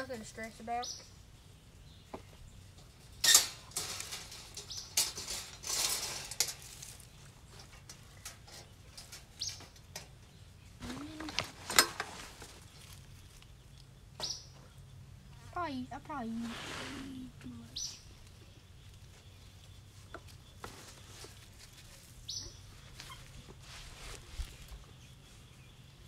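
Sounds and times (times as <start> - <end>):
wire cage trap rattling: 3.1 - 7.1.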